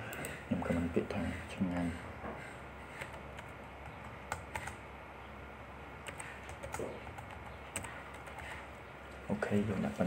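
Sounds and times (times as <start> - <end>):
typing on computer keyboard: 3.0 - 4.8, 6.0 - 8.6.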